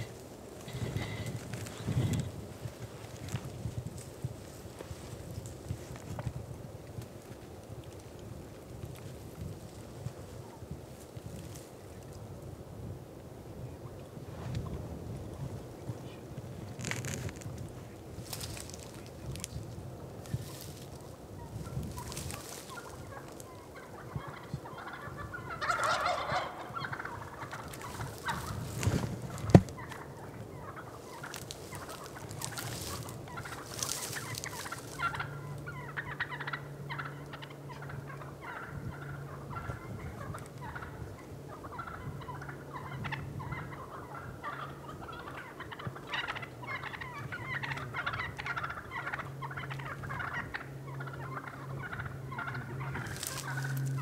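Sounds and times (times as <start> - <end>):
turkey gobble: 0.0 - 4.7, 20.2 - 54.0
turkeys clucking: 0.0 - 12.1, 16.8 - 54.0
low hum: 46.3 - 54.0.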